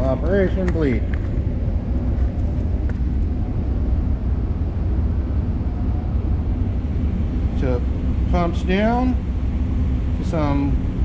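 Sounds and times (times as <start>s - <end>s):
vacuum pump drone and hiss: 0.0s - 11.0s.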